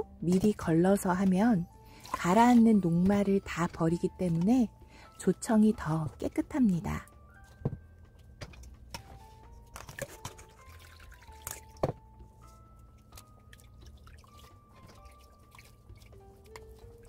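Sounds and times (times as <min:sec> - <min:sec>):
soft background music: 0:00.0 - 0:17.0
water dripping and trickling: 0:00.0 - 0:17.0.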